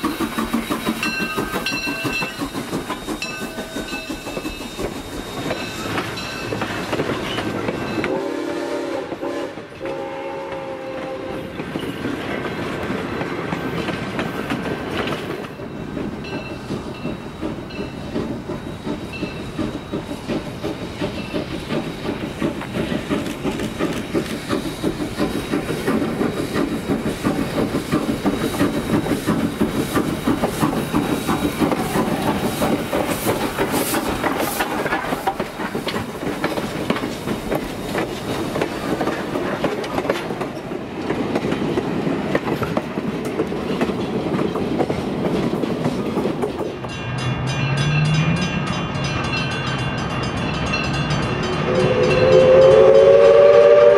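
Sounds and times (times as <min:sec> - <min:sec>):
wheels clicking over rail joints: 0:00.0 - 0:08.2, 0:11.0 - 0:51.7
steam train passing: 0:00.0 - 0:53.9
train whistle: 0:08.0 - 0:11.6, 0:51.6 - 0:53.9.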